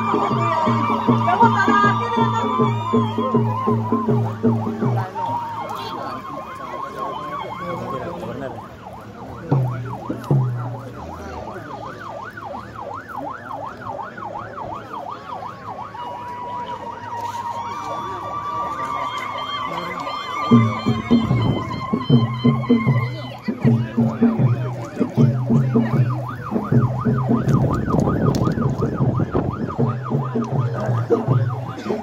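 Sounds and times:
low drum thumps: 0:00.0 - 0:05.3, 0:09.4 - 0:11.0, 0:20.5 - 0:32.0
high-pitched wail: 0:00.0 - 0:08.4, 0:15.0 - 0:32.0
crowd noise: 0:00.0 - 0:32.0.

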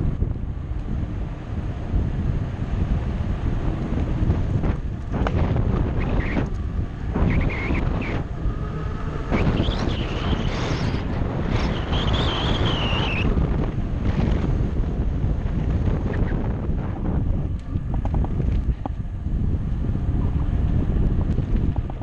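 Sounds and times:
wind buffeting microphone: 0:00.0 - 0:22.0
wavering high squeals: 0:05.9 - 0:13.4.

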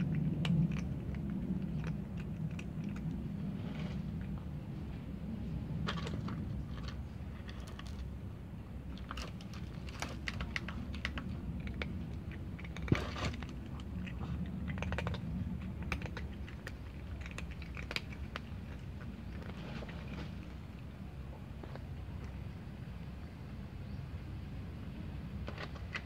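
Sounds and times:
cats crunching dry kibble: 0:00.0 - 0:23.6, 0:25.2 - 0:26.0.

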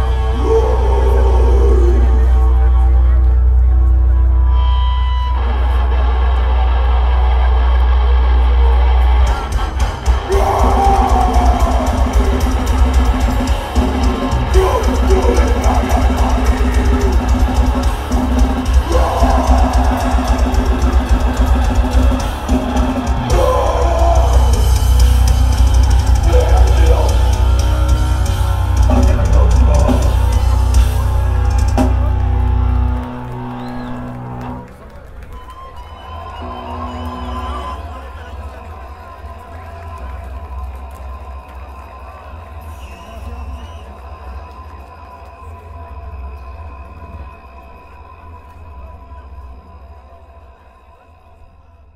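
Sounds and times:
harsh vocals: 0:00.0 - 0:02.8, 0:10.0 - 0:31.0
distorted bass and guitars: 0:00.0 - 0:34.7
drums and cymbals: 0:09.2 - 0:32.3.

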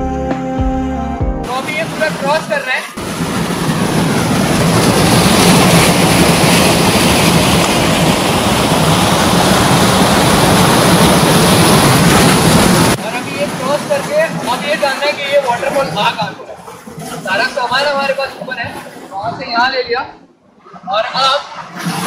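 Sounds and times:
water rushing over rocks: 0:01.5 - 0:19.8, 0:20.9 - 0:22.0.

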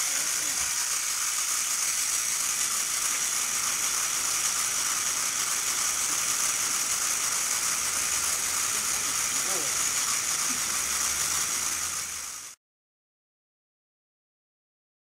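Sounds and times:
electric motors and plastic gears running: 0:00.0 - 0:12.6.

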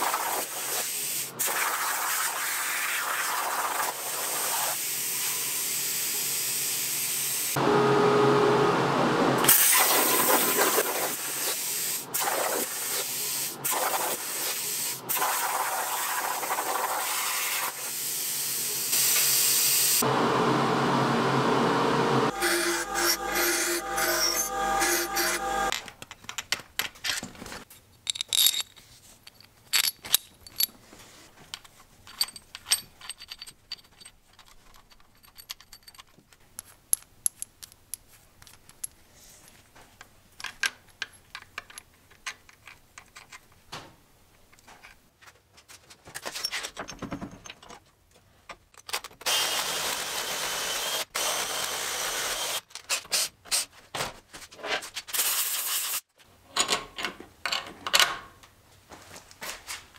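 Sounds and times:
small metallic clicks and clinks: 0:31.5 - 0:39.0.

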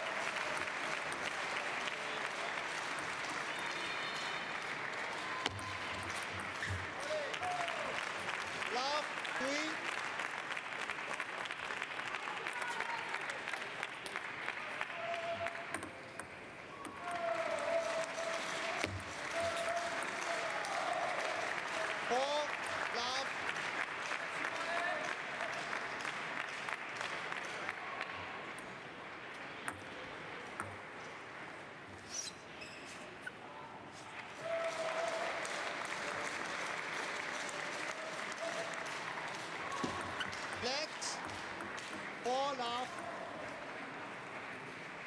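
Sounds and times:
crowd clapping: 0:00.0 - 0:15.8, 0:16.9 - 0:28.6, 0:34.1 - 0:45.0
hall background hubbub: 0:33.4 - 0:45.0.

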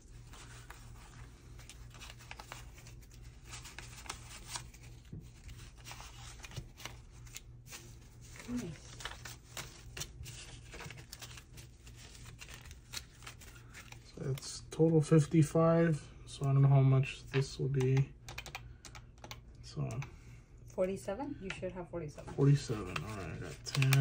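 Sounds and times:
paper bills rustling: 0:00.0 - 0:15.0, 0:22.2 - 0:24.0
low steady hum: 0:00.0 - 0:24.0.

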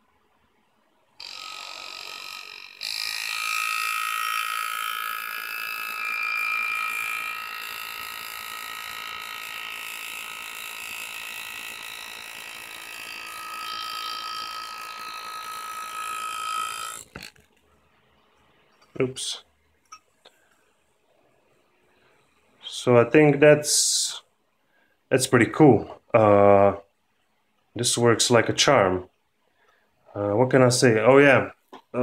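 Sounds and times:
air graver buzzing: 0:01.2 - 0:17.4.

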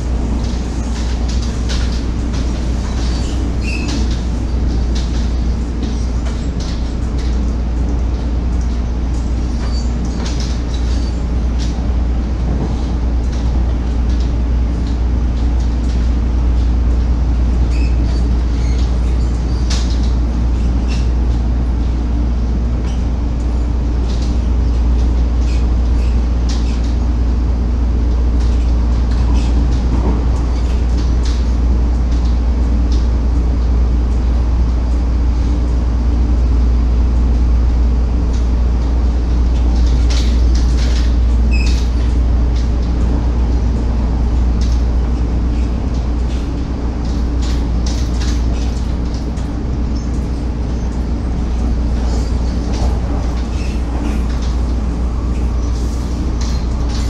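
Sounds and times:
wheels rumbling on track: 0:00.0 - 0:57.0
steady hum: 0:19.2 - 0:57.0.

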